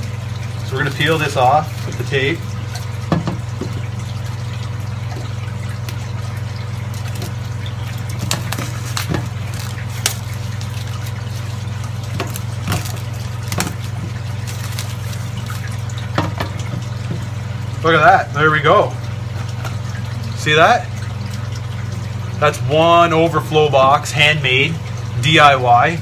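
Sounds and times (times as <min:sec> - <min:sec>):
plastic film being peeled off: 0:08.1 - 0:15.8.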